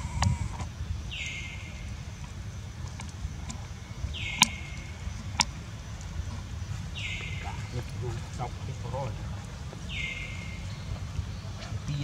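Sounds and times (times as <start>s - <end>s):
steady low rumble: 0.0s - 12.0s
sharp clicks: 4.3s - 6.2s.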